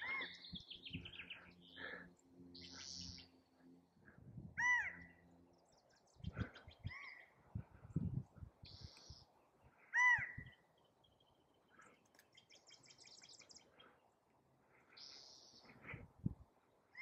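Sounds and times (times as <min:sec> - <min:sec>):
quail calling: 0:00.0 - 0:00.4, 0:04.6 - 0:05.1, 0:09.9 - 0:10.4
birds chirping faintly: 0:00.0 - 0:17.0.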